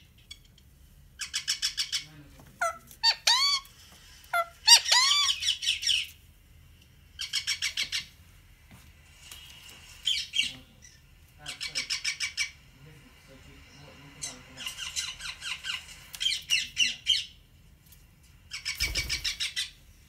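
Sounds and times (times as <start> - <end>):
parakeet squawking: 1.2 - 3.7, 4.3 - 6.1, 7.2 - 8.1, 10.0 - 12.6, 14.2 - 17.4.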